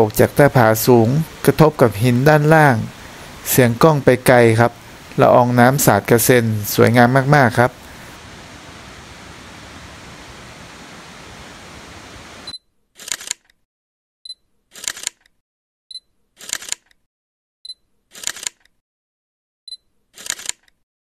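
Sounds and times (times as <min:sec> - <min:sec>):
distant waterfall rushing: 0:00.0 - 0:12.5
camera shutter sound effect: 0:12.4 - 0:13.6, 0:14.7 - 0:15.3, 0:16.4 - 0:17.0, 0:18.1 - 0:18.7, 0:20.2 - 0:20.8.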